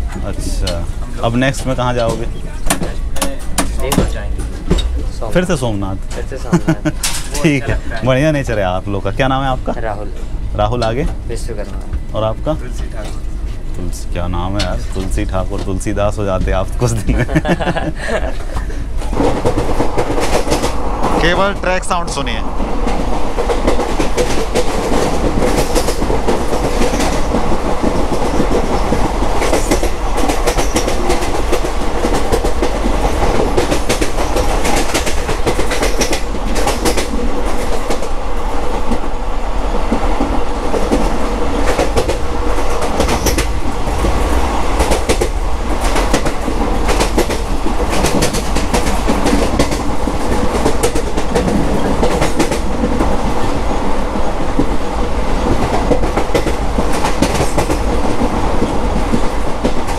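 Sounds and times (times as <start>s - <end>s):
train rumble and rattle: 0.0s - 59.9s
wheels clacking over rail joints: 14.4s - 59.9s.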